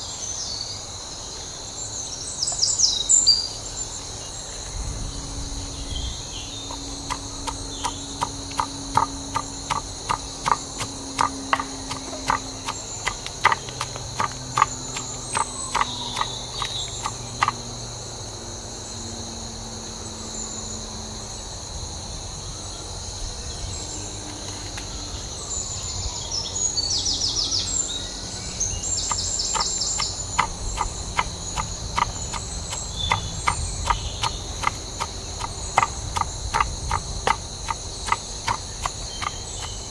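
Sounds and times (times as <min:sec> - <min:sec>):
forest insects chirring: 0:00.0 - 0:39.9
fast pulsing insect trill: 0:00.9 - 0:24.3, 0:24.9 - 0:39.9
pestle pounding in wooden mortar: 0:06.7 - 0:17.6, 0:29.1 - 0:39.9.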